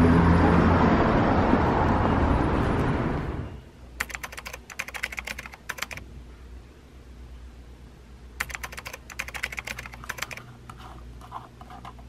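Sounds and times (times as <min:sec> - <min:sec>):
loud street noise: 0:00.0 - 0:03.7
keyboard typing clicks: 0:04.0 - 0:06.0, 0:08.4 - 0:10.5.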